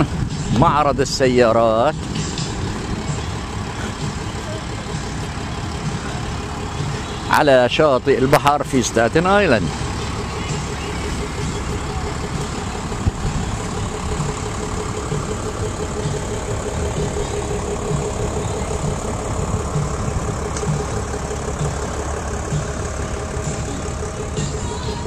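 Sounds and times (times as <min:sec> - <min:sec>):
vehicle engine running: 0:00.0 - 0:25.0.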